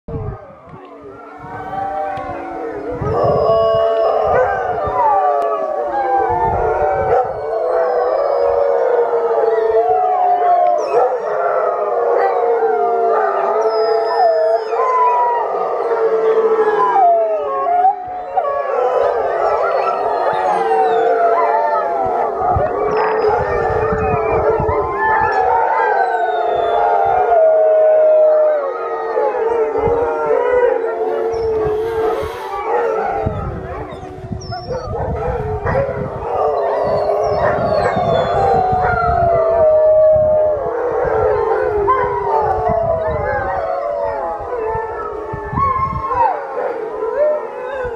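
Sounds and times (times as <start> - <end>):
huskies howling in chorus: 0.1 - 47.9.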